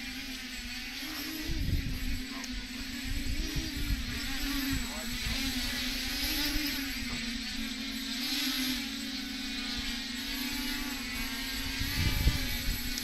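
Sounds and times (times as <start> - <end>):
quadcopter propellers buzzing: 0.0 - 13.0
wind rumble on microphone: 0.7 - 7.7, 9.6 - 13.0.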